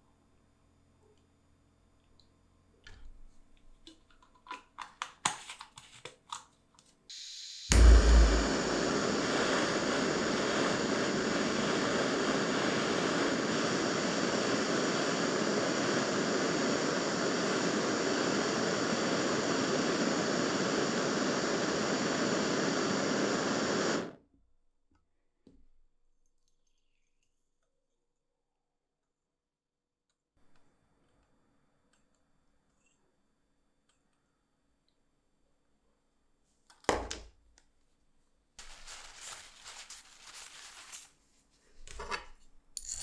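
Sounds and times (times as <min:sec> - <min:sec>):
gas torch lighting with a pop: 0:07.1 - 0:24.2
torch flame hissing: 0:07.1 - 0:24.2.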